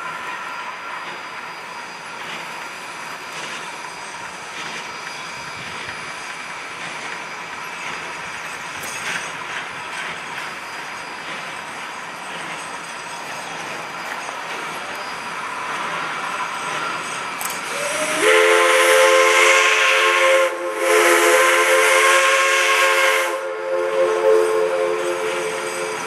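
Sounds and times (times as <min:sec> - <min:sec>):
low train running noise: 0:00.0 - 0:26.0
steam whistle blasts: 0:17.6 - 0:26.0.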